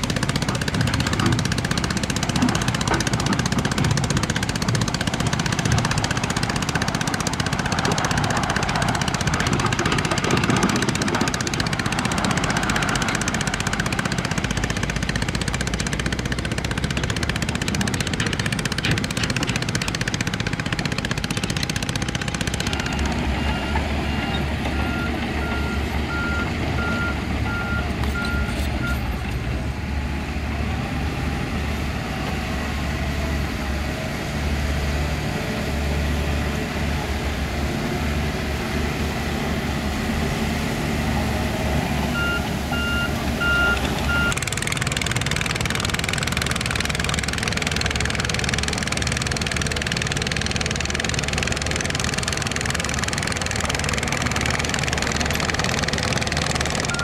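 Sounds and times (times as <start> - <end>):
diesel engine running: 0.0 - 57.0
reversing alarm beeping: 22.7 - 29.0, 42.1 - 44.4.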